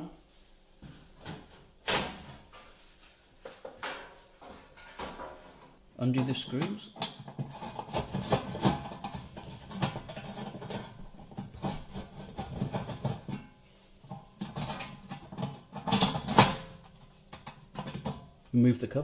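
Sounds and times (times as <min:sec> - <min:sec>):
metal clatter: 0:06.2 - 0:18.4.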